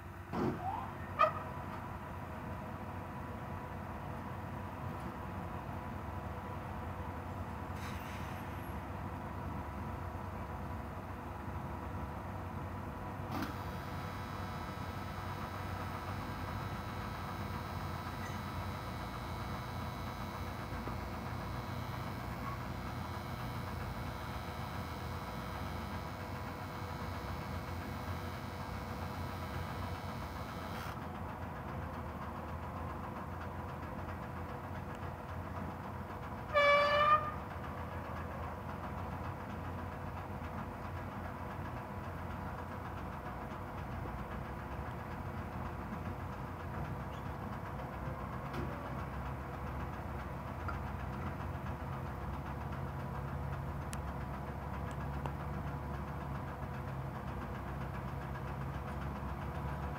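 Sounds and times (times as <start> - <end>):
machinery engines idling: 9.1 - 36.4
loud horn blast: 36.5 - 37.4.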